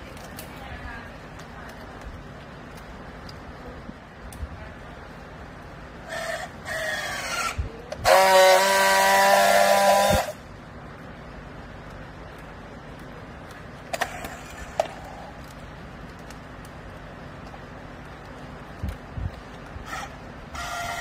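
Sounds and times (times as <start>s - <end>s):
strapping tool motor whirs: 6.1s - 10.4s, 19.8s - 21.0s
strapping tool loud buzz: 6.7s - 10.4s.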